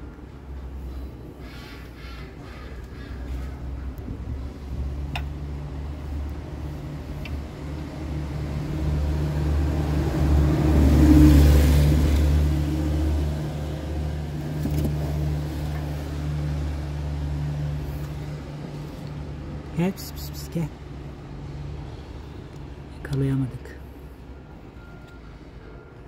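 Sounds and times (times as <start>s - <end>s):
engine running with low hum: 2.5s - 19.7s.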